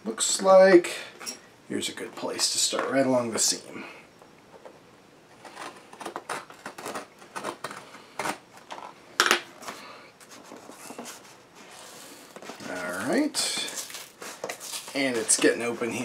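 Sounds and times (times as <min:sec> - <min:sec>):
tool cutting package tape: 0:05.4 - 0:08.4.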